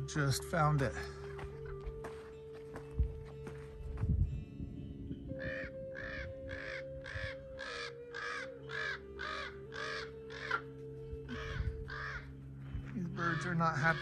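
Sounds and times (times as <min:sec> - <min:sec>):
crow cawing harshly: 0:05.4 - 0:10.7, 0:11.3 - 0:12.4, 0:13.2 - 0:14.0.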